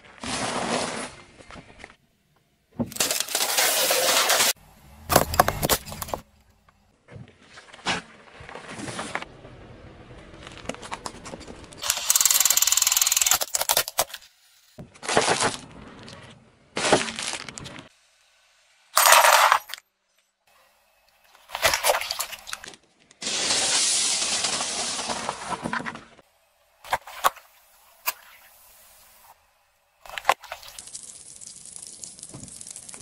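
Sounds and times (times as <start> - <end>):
tyre crushing objects: 2.8 - 6.3.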